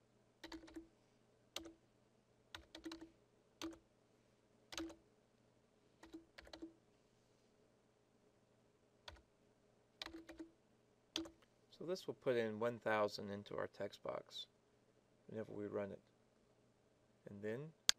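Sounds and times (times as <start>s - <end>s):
faint keyboard typing: 0.4s - 1.8s, 2.5s - 3.9s, 4.7s - 5.0s, 6.0s - 6.8s, 9.0s - 9.3s, 10.0s - 11.5s.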